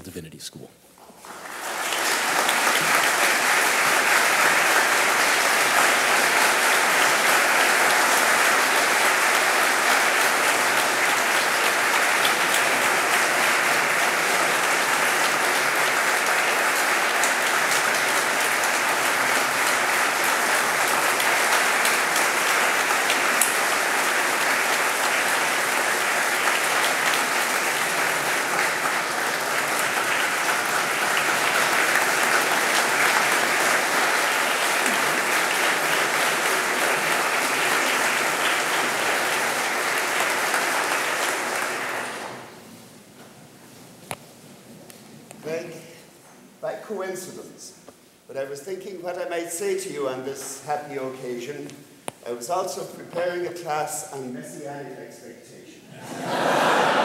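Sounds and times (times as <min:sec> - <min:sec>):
audience applauding: 0:01.1 - 0:42.7, 0:55.9 - 0:57.0.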